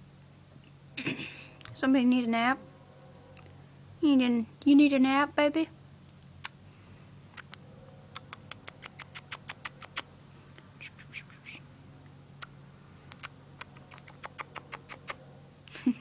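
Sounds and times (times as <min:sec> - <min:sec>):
bird beak clicks and smacks: 0:07.3 - 0:10.1, 0:12.4 - 0:15.2.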